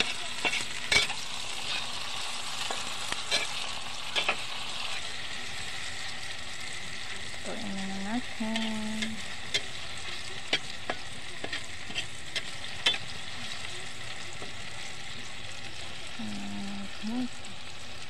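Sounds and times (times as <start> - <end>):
spatula scraping a wok: 0.0 - 6.1, 8.5 - 13.6
vegetables sizzling in hot oil: 0.0 - 18.0.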